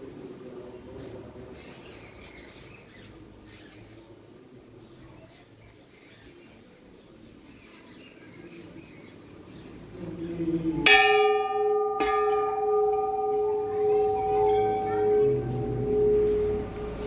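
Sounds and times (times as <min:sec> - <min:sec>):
temple bell ringing: 0:10.8 - 0:17.0.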